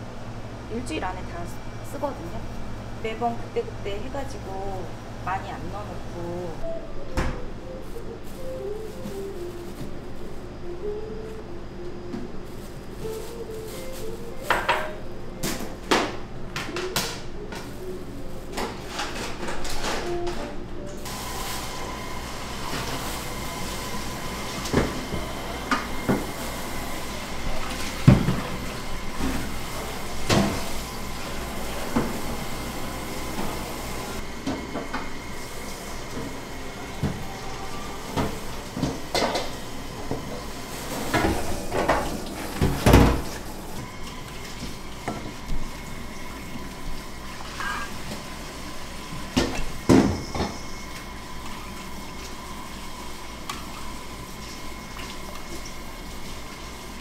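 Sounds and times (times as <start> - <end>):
bowls and utensils clattering: 47.4 - 48.1.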